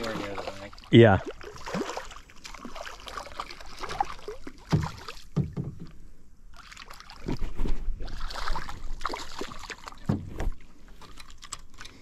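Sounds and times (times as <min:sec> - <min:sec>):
fish thrashing and splashing: 0:00.0 - 0:05.4, 0:06.6 - 0:12.0
dull thumps: 0:04.7 - 0:06.0.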